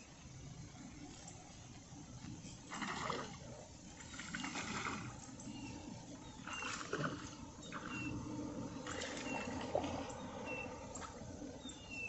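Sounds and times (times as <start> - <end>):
low steady rumble: 0.0 - 12.0
fish splashing at water surface: 2.7 - 3.4, 4.0 - 5.2, 8.8 - 11.2
bird whistling: 5.5 - 6.8, 7.6 - 8.2, 8.8 - 9.7, 10.4 - 10.8, 11.6 - 12.0.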